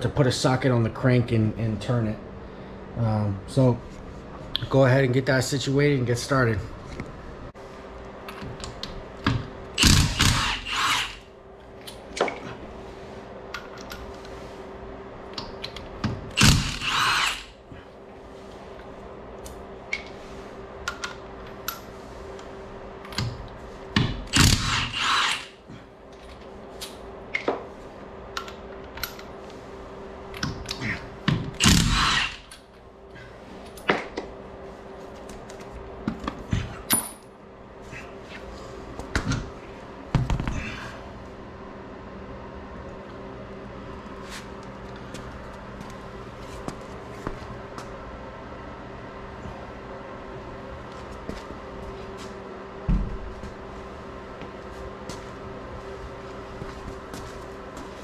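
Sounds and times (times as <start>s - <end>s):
faint steady hum: 0.0s - 58.0s
impact wrench hammering: 9.8s - 11.2s, 16.4s - 17.5s, 24.0s - 25.6s, 31.3s - 32.5s.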